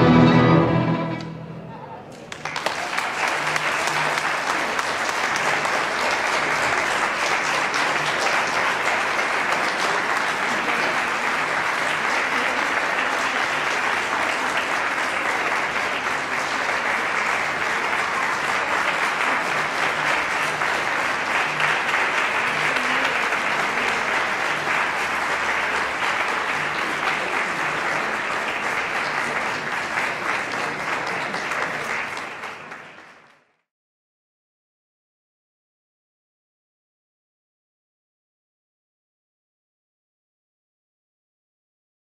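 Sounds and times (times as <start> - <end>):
audience applauding: 2.1 - 33.6.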